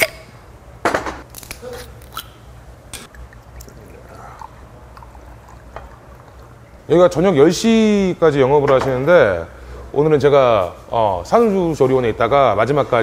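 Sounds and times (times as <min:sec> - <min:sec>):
liquid trickling into a glass: 0:03.1 - 0:06.8.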